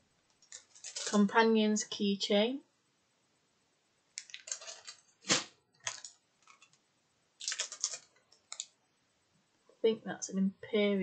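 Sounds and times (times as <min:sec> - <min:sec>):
plastic packaging crinkling: 0:00.4 - 0:01.3, 0:04.2 - 0:06.8, 0:07.4 - 0:08.8.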